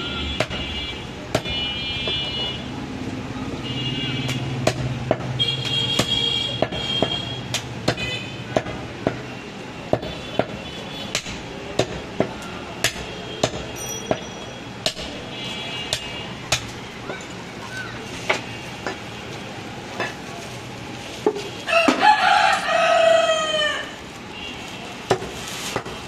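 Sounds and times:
knife chopping meat and bone: 0:01.3 - 0:01.6, 0:04.3 - 0:09.3, 0:09.9 - 0:15.2, 0:15.9 - 0:16.8.

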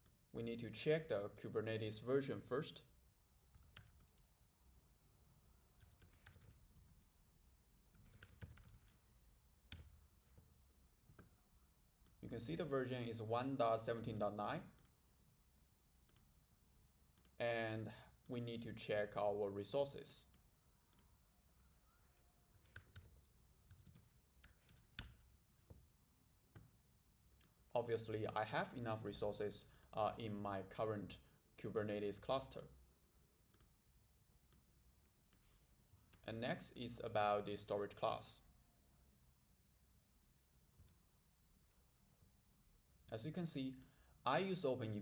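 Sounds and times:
keyboard typing: 0:03.5 - 0:04.4, 0:05.7 - 0:09.0, 0:21.8 - 0:25.3.

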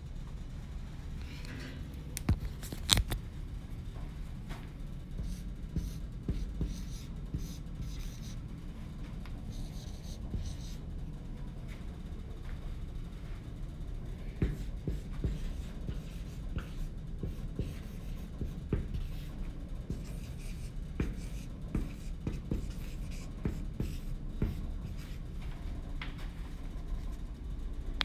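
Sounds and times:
steady low hum: 0:00.0 - 0:28.0
marker writing on whiteboard: 0:05.2 - 0:08.4, 0:09.5 - 0:10.9, 0:14.2 - 0:25.2.

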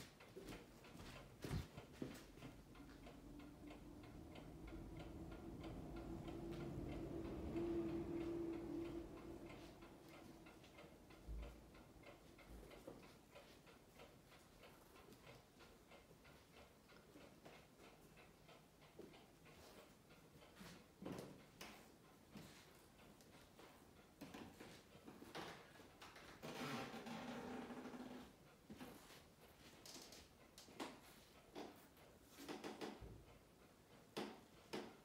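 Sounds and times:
faint rapid ticking: 0:00.0 - 0:26.4
low steady hum: 0:02.4 - 0:12.8.

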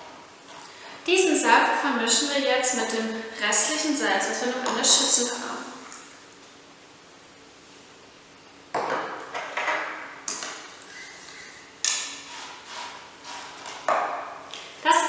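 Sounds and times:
spoon scraping ceramic bowl: 0:10.8 - 0:13.9.

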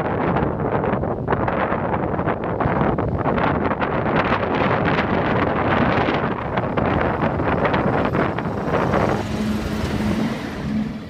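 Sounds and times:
train rolling past: 0:05.4 - 0:11.0.

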